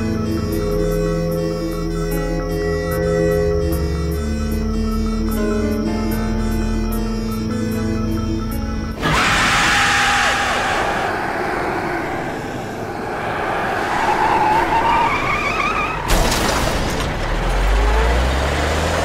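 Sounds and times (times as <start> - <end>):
wavering whine: 0.0 - 9.1
cartoon vehicle rush: 9.0 - 18.8.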